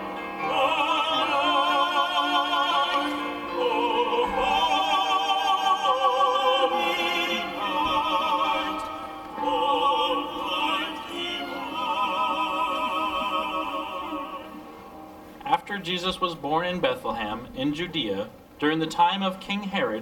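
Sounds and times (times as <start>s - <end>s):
operatic singing: 0.0s - 15.4s.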